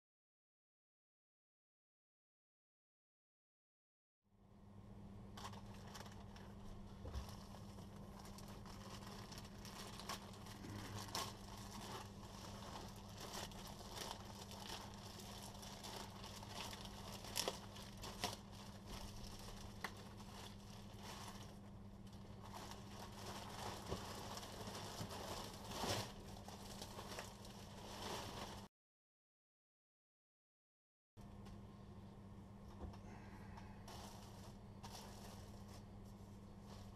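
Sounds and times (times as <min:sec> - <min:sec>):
faint low hum: 0:04.3 - 0:28.7, 0:31.2 - 0:36.9
plastic bag crinkling: 0:05.3 - 0:28.7, 0:33.8 - 0:36.9.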